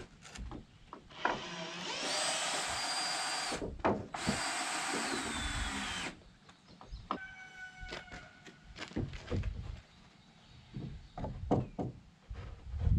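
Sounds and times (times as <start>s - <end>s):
power drill boring into wood: 1.2s - 3.6s, 4.2s - 6.2s.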